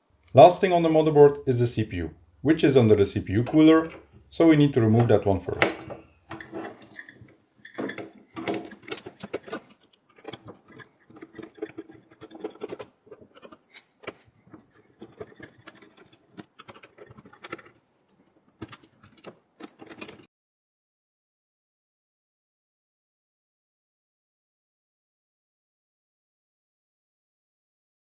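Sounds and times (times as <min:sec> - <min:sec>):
small metal parts handled: 0:05.5 - 0:20.3
screwdriver turning screws: 0:05.8 - 0:20.3.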